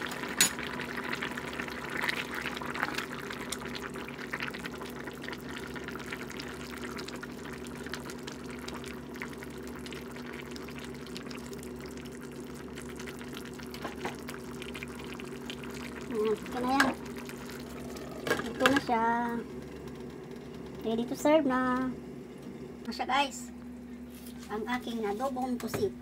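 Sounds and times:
sauce bubbling in a wok: 0.0s - 20.8s.

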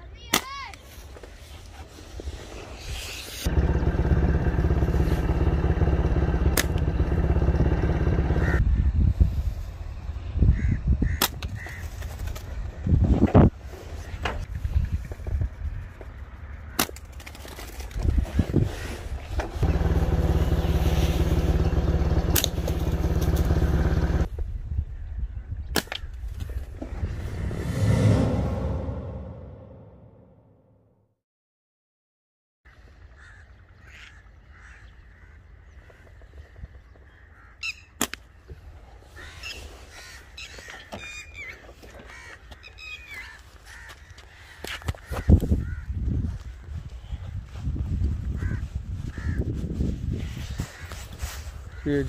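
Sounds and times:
engine running: 3.5s - 8.6s, 19.6s - 24.3s, 26.9s - 30.2s.

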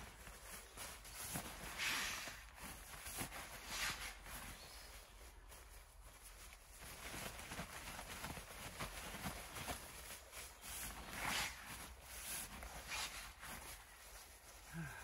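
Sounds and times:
camping gear rustling and knocking: 0.0s - 15.0s
short swishes: 10.7s - 13.8s.

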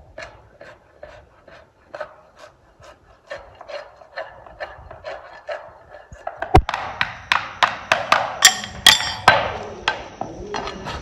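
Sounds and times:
hoof rasp filing hoof: 0.0s - 6.7s.

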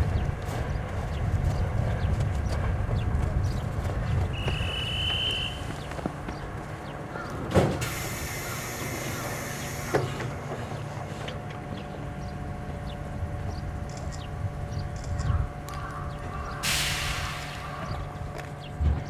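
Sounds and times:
electric train equipment humming: 0.0s - 19.0s
compressed air hiss: 7.8s - 10.2s, 16.6s - 17.9s.

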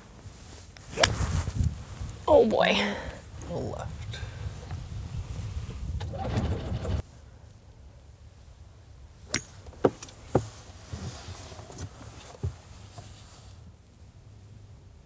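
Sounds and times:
wind buffeting microphone: 0.9s - 7.0s.

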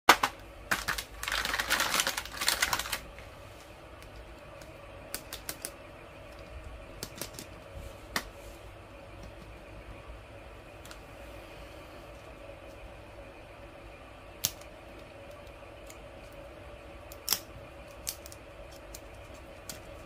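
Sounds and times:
plastic and cardboard packaging clatter: 0.1s - 3.0s.

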